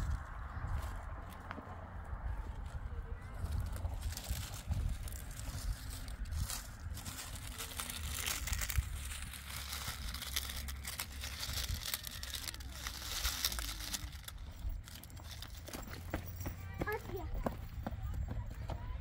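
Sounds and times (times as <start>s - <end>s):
dry leaves rustling and crackling: 2.4s - 16.4s.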